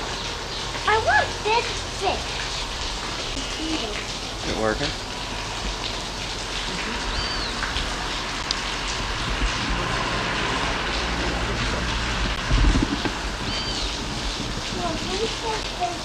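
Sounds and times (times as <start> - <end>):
water splashing in pool: 0.0 - 16.0.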